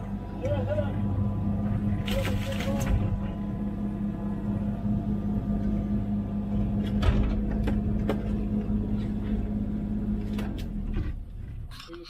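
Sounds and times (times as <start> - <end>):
diesel engine running: 0.0 - 12.0
excavator arm knocks and clunks: 2.8 - 3.4, 6.7 - 8.7.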